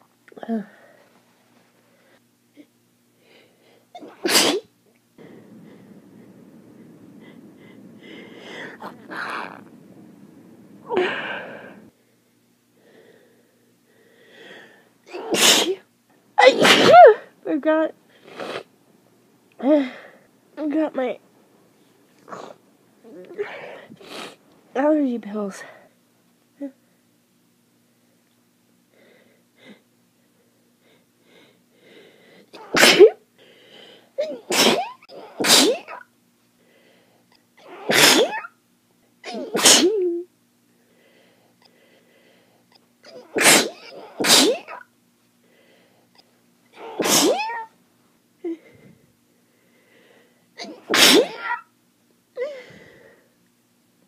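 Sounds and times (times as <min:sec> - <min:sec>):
person breathing: 0:03.2 - 0:03.9, 0:05.2 - 0:09.9, 0:10.8 - 0:15.0, 0:23.4 - 0:24.4, 0:28.9 - 0:32.6, 0:33.4 - 0:34.2, 0:36.6 - 0:37.3, 0:40.8 - 0:42.7, 0:45.4 - 0:46.1, 0:48.4 - 0:50.5, 0:52.4 - 0:53.4
person sneezing: 0:04.0 - 0:04.7, 0:08.4 - 0:09.7, 0:15.1 - 0:15.8, 0:16.4 - 0:17.3, 0:32.6 - 0:33.2, 0:34.2 - 0:36.1, 0:37.6 - 0:38.6, 0:39.2 - 0:40.3, 0:43.1 - 0:44.9, 0:46.8 - 0:47.7, 0:50.6 - 0:51.7.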